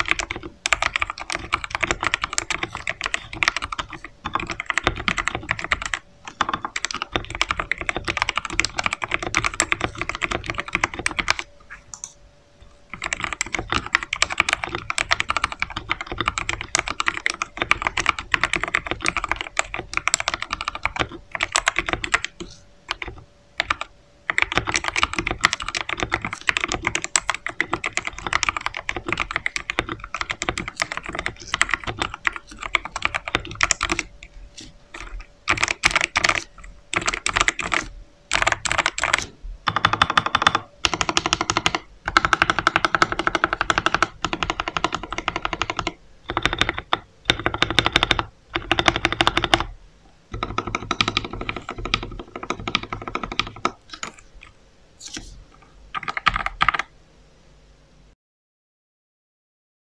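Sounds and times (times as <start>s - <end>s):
fast typing on mechanical keyboard: 0.0s - 12.1s, 12.9s - 56.9s.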